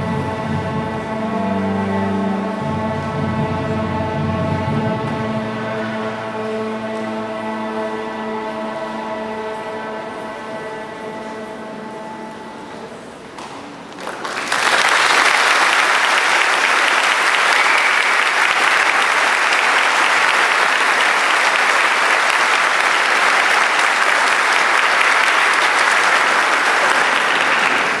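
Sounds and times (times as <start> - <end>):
audience applauding: 13.9 - 28.0.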